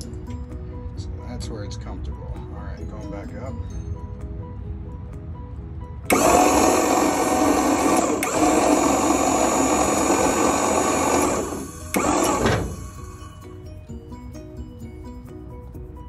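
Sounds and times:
hydraulic pump motor running: 6.1s - 13.4s.

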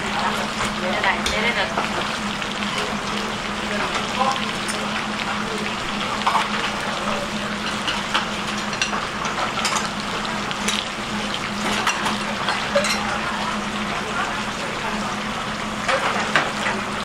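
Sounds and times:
dishes and utensils clinking: 6.2s - 10.0s, 11.6s - 13.3s.

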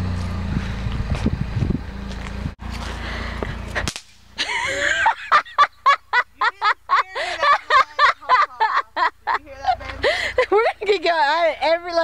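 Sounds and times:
wind rumble on microphone: 0.0s - 2.6s
woman laughing: 4.4s - 11.4s.

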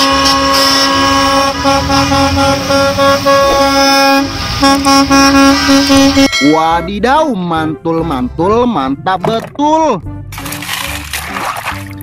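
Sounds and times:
buses driving past: 0.0s - 7.0s
bus horns honking: 0.0s - 7.3s.

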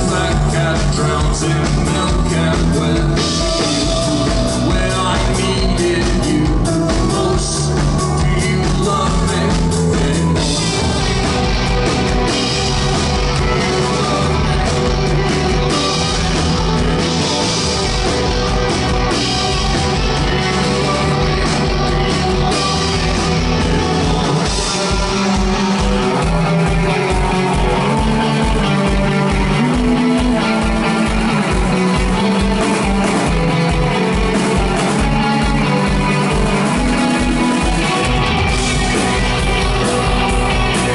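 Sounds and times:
live rock band playing: 0.0s - 40.9s.

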